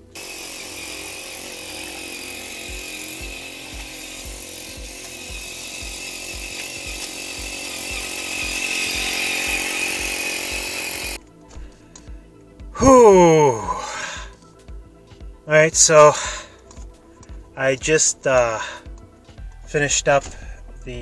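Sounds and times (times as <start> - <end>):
small gas engine running: 0.0 - 11.2, 15.8 - 16.6.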